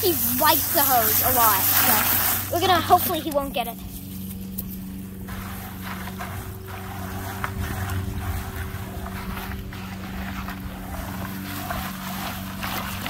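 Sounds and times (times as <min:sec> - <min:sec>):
low machine hum: 0:00.0 - 0:13.0
wet charcoal stirred in bucket: 0:00.0 - 0:13.0.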